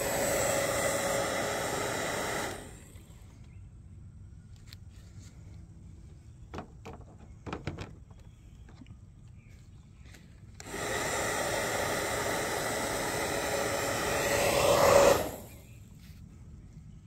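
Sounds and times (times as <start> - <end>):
bubble gun fan motor: 0.0 - 3.4, 10.6 - 15.8
faint rustles and clicks: 4.5 - 10.6, 15.7 - 17.0.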